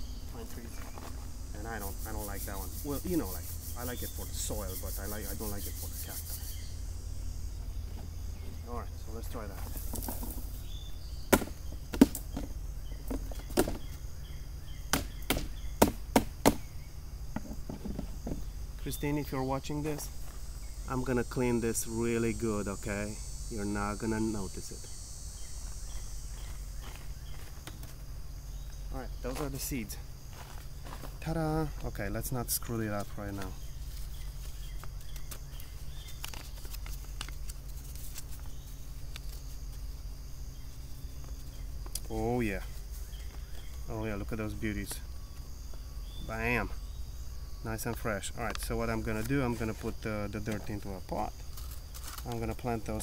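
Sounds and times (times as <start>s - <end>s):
bird calls: 0.0s - 29.9s, 31.0s - 37.2s, 40.5s - 53.0s
faint insect calls: 0.0s - 53.0s
paper snapping and crinkling: 34.4s - 39.5s, 51.5s - 52.4s.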